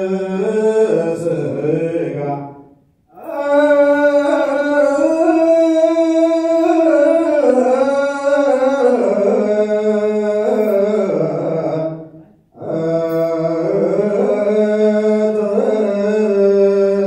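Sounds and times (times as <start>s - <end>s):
liturgical chant singing: 0.0s - 17.0s.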